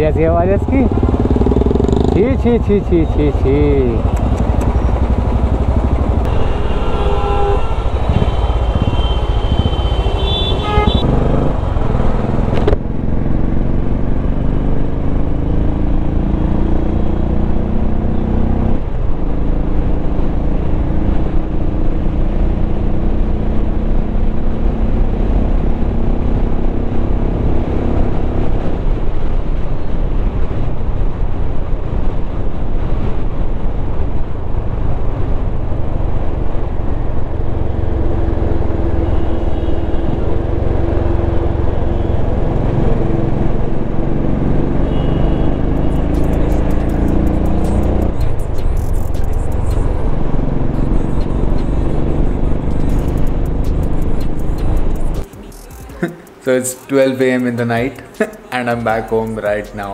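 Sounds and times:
motorcycle engine rumbling: 0.0 - 16.0, 35.1 - 56.6
horn-like tones: 6.3 - 11.1.

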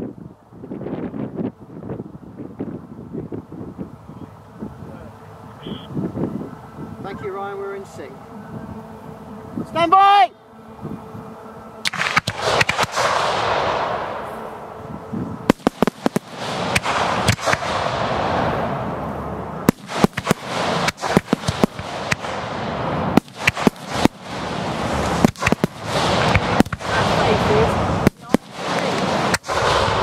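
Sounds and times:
rushing hiss of rising fireworks: 0.0 - 30.0
fireworks bangs: 11.8 - 30.0.

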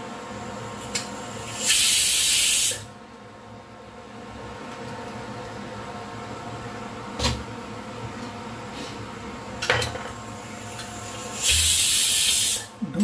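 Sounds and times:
pressure cooker steam hissing: 0.6 - 2.9, 10.3 - 12.8.

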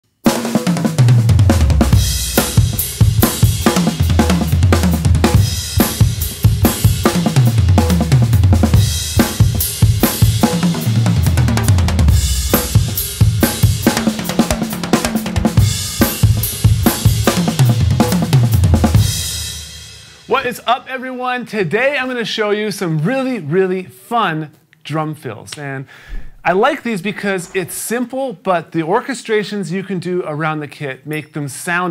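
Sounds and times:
snare drum: 0.3 - 19.2
tom drum fills: 0.3 - 20.6
bass drum: 0.8 - 19.5
crash cymbals: 2.0 - 4.1.

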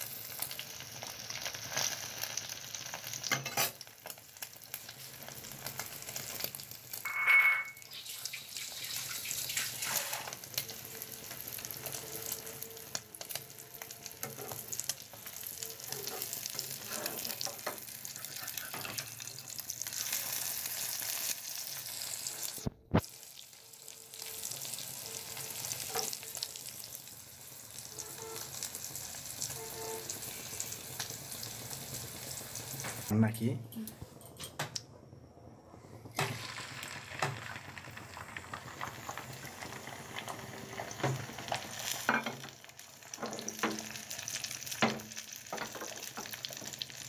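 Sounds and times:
egg sizzling in hot oil: 0.0 - 33.1, 36.1 - 47.0
metal spatula scraping pan: 15.8 - 19.1.

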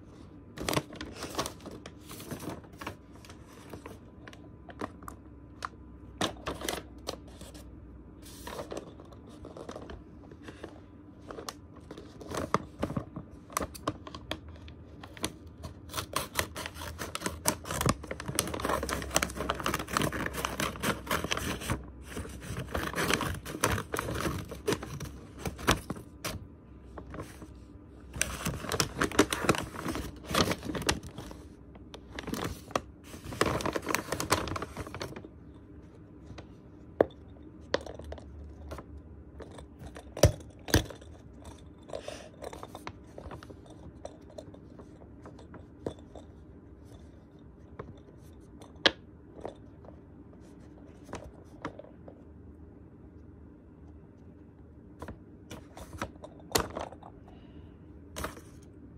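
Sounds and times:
paper envelope rustling: 0.6 - 4.0, 15.1 - 26.4, 27.0 - 35.3.

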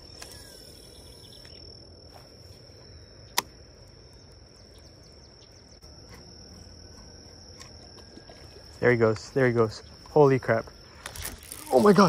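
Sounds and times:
high-pitched insect trilling: 0.0 - 3.3, 6.5 - 12.0.

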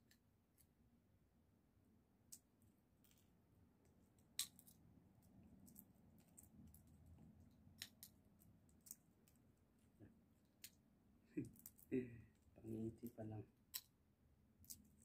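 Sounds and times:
seed shells cracking: 4.2 - 6.9, 11.4 - 11.9, 14.6 - 15.0.

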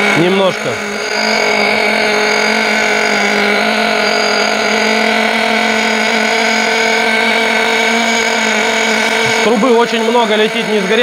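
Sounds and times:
two-stroke model engine running: 0.0 - 11.0.

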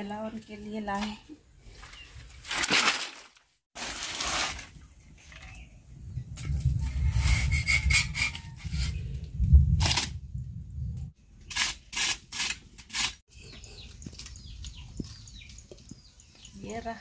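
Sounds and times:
birds chirping: 13.3 - 17.0.

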